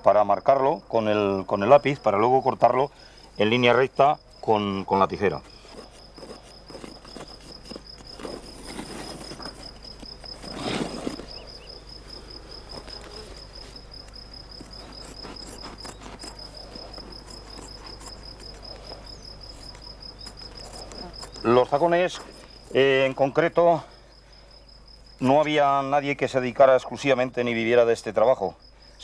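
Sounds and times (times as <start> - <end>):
crickets chirping: 0.0 - 29.0
loud rustle: 5.5 - 13.8.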